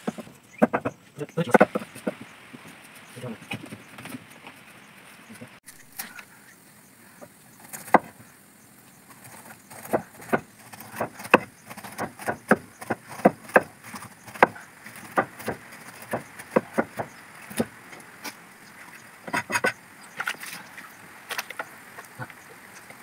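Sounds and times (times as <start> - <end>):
cleaver chopping on wooden board: 0.0 - 2.2, 9.7 - 17.8.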